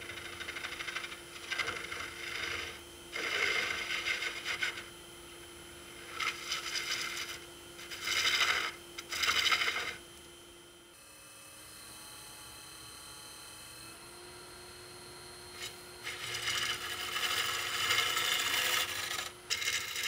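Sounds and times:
tool scraping wood on lathe: 0.0s - 5.0s, 5.8s - 10.0s, 15.6s - 20.0s
steady hum: 0.0s - 11.0s.

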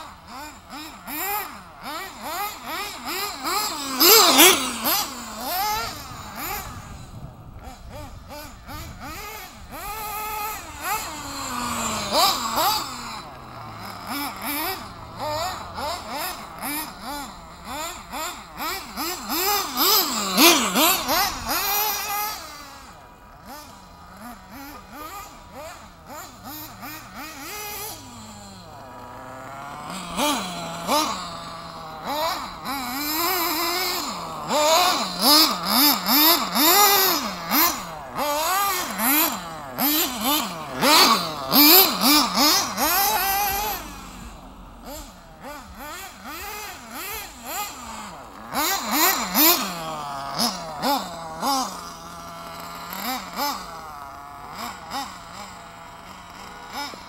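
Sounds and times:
small glow engine revving: 0.0s - 57.0s.

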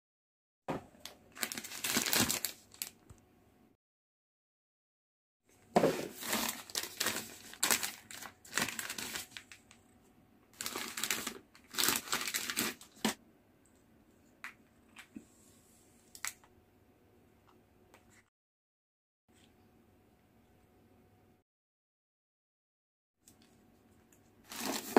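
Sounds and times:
plastic wrapping crinkling: 1.3s - 3.0s, 5.8s - 9.8s, 10.6s - 13.2s, 24.5s - 24.9s.

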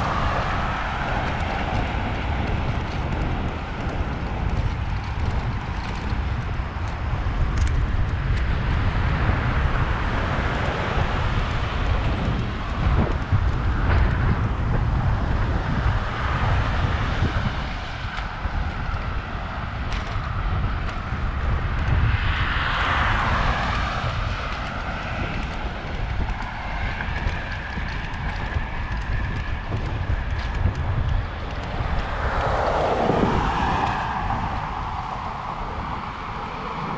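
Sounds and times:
road traffic: 0.0s - 36.9s
wind buffeting microphone: 0.0s - 36.9s
vehicle passing: 27.1s - 36.9s.

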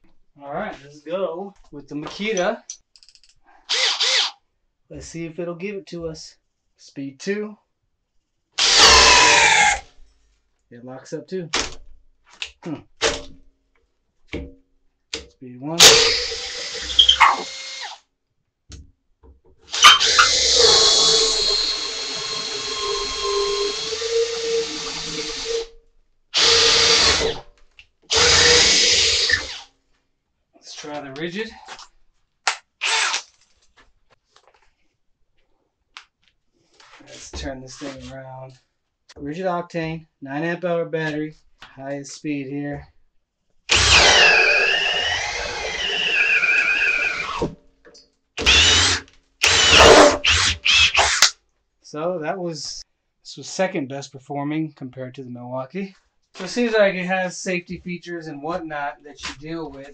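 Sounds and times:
drill boring through wood: 3.7s - 4.4s, 8.6s - 9.8s, 15.8s - 18.0s, 19.7s - 25.7s, 26.4s - 27.4s, 28.1s - 29.6s, 32.8s - 33.2s, 43.7s - 47.5s, 48.4s - 51.3s.

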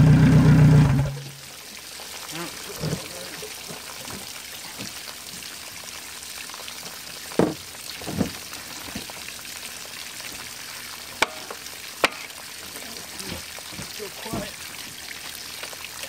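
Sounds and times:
steady hiss: 6.6s - 16.0s
engine cover dull knocks: 7.4s - 8.4s.

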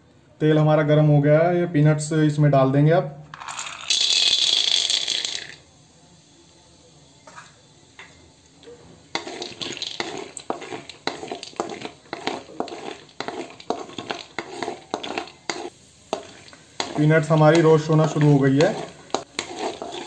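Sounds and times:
peanuts rattling into hot oil: 3.3s - 5.7s, 9.1s - 20.0s
spatula scraping and knocking pan: 9.1s - 20.0s.

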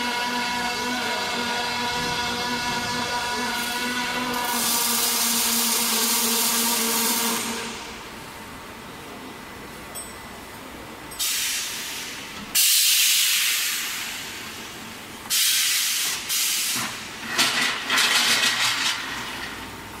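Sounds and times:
compressed air hissing: 11.2s - 14.5s, 15.3s - 16.9s.

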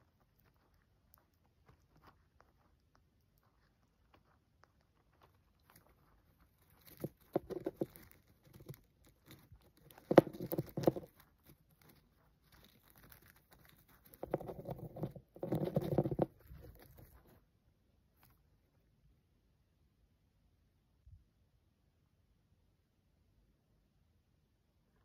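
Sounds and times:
hamster gnawing peanut shell: 0.0s - 17.5s.

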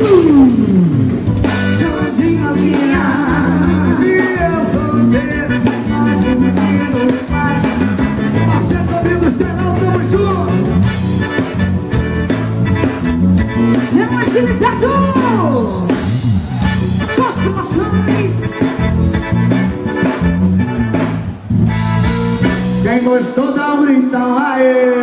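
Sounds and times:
live band playing: 0.0s - 25.0s
accordion: 1.2s - 23.0s.

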